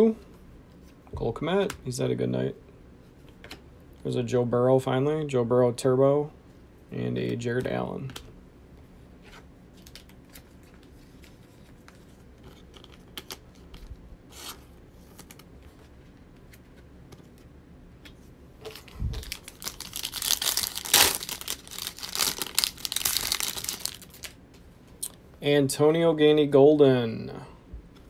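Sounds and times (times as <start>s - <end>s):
soft clicks of cards handled: 3.2s - 3.7s, 15.1s - 18.3s
foil wrapper tearing and crinkling: 18.6s - 24.4s.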